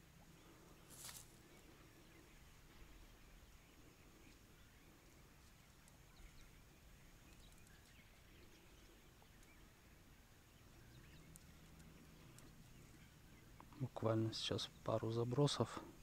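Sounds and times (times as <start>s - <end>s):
tiny ticks: 5.4s - 6.0s, 7.2s - 7.9s, 11.2s - 12.7s.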